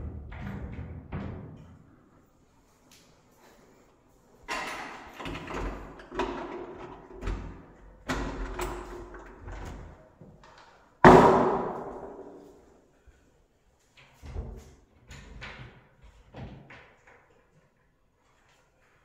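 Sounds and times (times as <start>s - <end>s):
door slamming: 11.0s - 12.4s.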